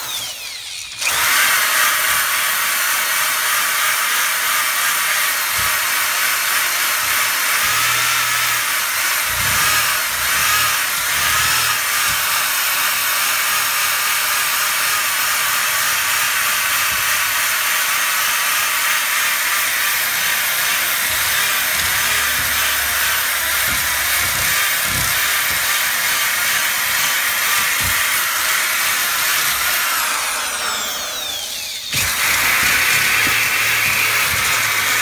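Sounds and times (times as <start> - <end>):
drill motor winding down: 0.0 - 35.0
drill sanding wood: 0.0 - 35.0.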